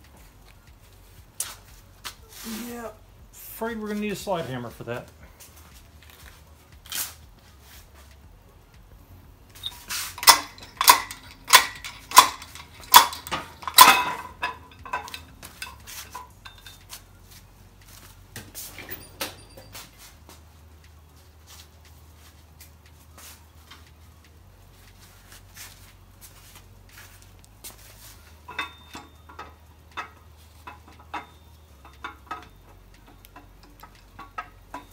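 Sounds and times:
slide hammer metal clanks: 9.6s - 17.0s, 28.4s - 34.9s
light metal clinks: 9.6s - 17.1s, 18.6s - 20.2s, 27.7s - 34.9s.

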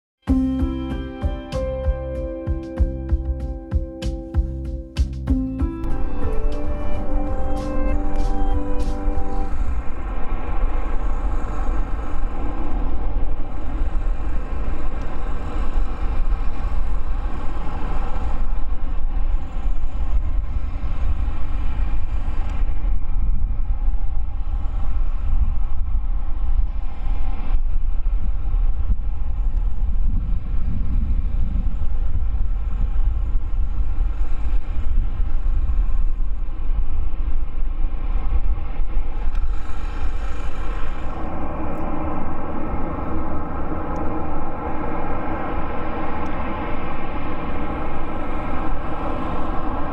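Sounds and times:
jet engines whining: 5.6s - 27.6s, 37.4s - 49.9s.

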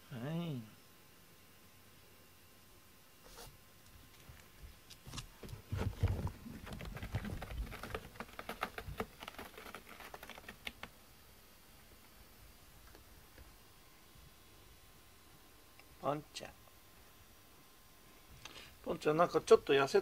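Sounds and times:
cat scratching carpet: 3.2s - 3.6s, 4.2s - 10.9s
dull thuds: 5.1s - 8.0s.

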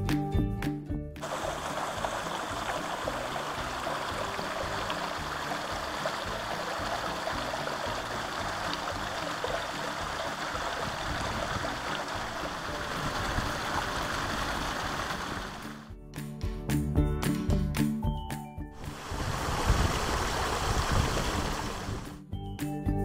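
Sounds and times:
waterfall rushing: 1.2s - 15.8s, 18.8s - 22.2s.

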